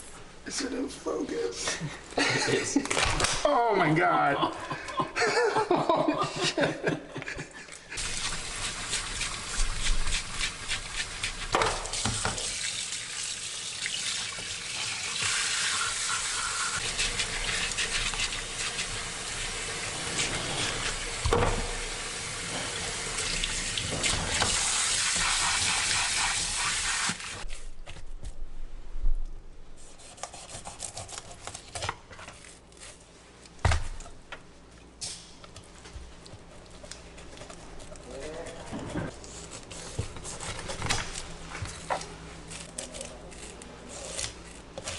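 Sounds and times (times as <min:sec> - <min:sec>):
brush scrubbing fish: 0:08.0 - 0:12.2, 0:15.2 - 0:21.0, 0:36.4 - 0:40.7.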